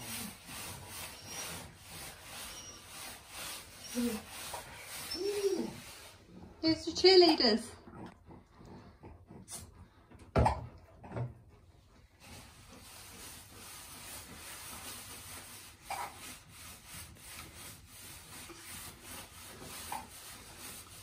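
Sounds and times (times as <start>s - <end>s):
hands scrubbing wet fur: 0.0s - 7.8s, 12.2s - 21.0s.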